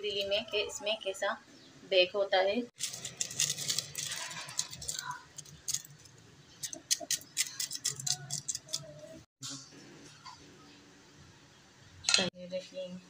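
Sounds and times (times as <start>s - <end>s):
paper crinkling and crackling: 2.8s - 8.9s.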